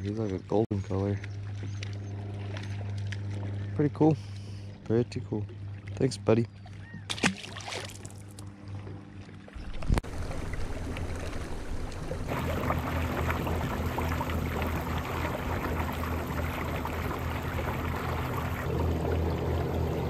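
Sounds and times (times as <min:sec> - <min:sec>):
low steady hum: 0:00.0 - 0:20.0
water rushing and splashing: 0:07.1 - 0:08.3, 0:09.5 - 0:20.0.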